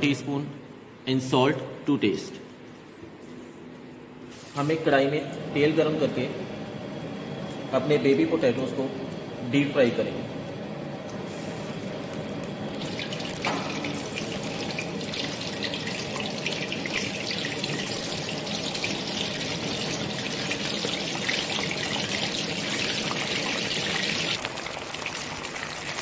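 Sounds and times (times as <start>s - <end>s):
potatoes sizzling in hot oil: 11.3s - 26.0s.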